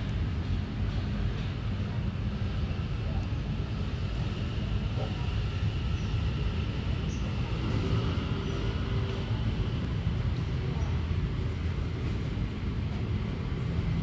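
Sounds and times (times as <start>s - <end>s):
low outdoor rumble: 0.0s - 14.0s.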